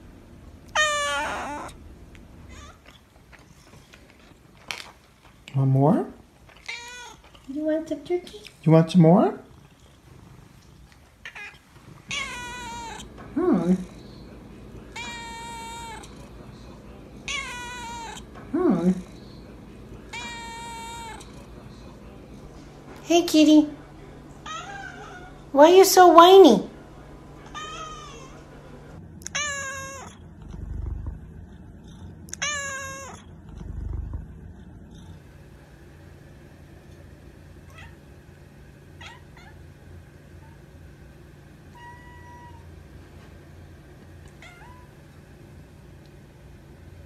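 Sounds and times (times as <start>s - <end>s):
cat meowing: 0.7s - 1.8s, 2.5s - 2.9s, 6.6s - 7.3s, 11.2s - 13.1s, 14.9s - 16.2s, 17.2s - 18.3s, 20.1s - 21.4s, 24.4s - 25.5s, 27.4s - 28.5s, 29.2s - 30.2s, 32.3s - 33.2s, 39.0s - 39.6s, 41.7s - 42.7s, 44.4s - 44.9s
muffled low rumble: 30.3s - 32.4s, 33.3s - 37.3s.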